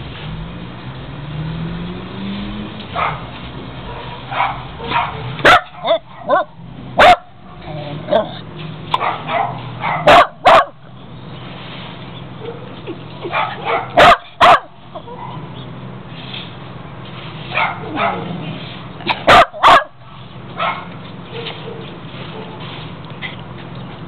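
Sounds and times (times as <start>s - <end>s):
dog barking loudly: 3.0s - 7.4s, 8.1s - 10.8s, 13.3s - 15.5s, 17.5s - 18.4s, 19.1s - 20.0s, 20.6s - 21.8s.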